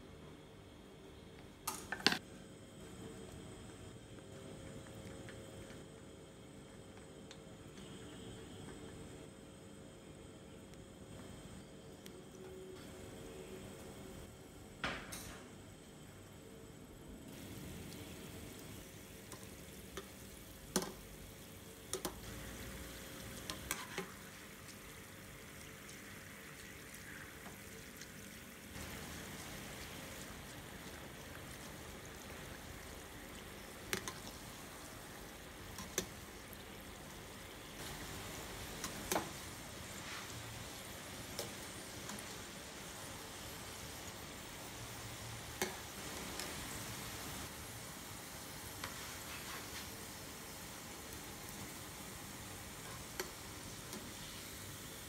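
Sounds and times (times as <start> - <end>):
oil bubbling and sizzling: 15.9 - 55.0.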